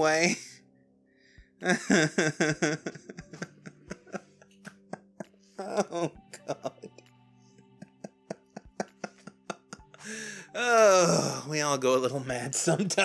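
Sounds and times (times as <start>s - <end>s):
man laughing: 1.6s - 7.0s, 7.8s - 10.0s, 12.6s - 13.0s
catches of breath: 10.0s - 10.6s.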